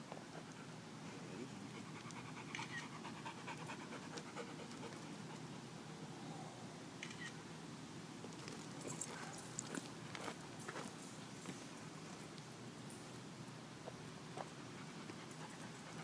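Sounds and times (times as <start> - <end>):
dog panting: 1.7 - 5.6, 14.7 - 16.0.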